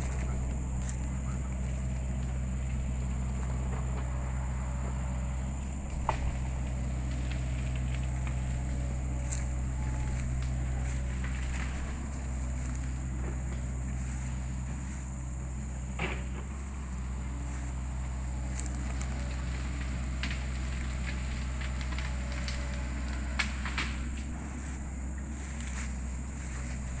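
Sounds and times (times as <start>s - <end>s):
twigs snapping: 0.0s - 3.7s, 5.7s - 14.3s, 16.0s - 24.8s
footsteps through dry grass: 0.0s - 27.0s
low rumble: 0.0s - 27.0s.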